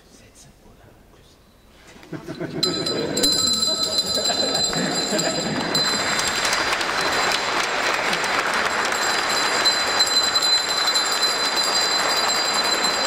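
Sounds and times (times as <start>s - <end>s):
congregation applauding: 2.6s - 13.0s.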